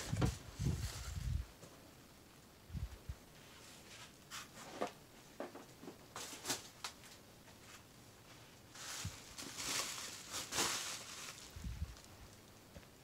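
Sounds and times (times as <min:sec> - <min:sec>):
bubble wrap crinkling: 0:08.7 - 0:12.6.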